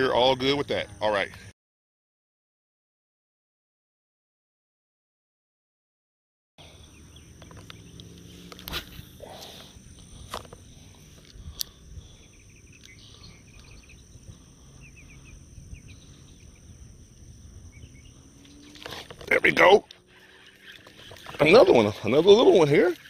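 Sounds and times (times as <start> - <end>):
insects whining and chirping: 0.0 - 1.5, 6.6 - 23.0
sharp clicks: 12.7 - 13.8.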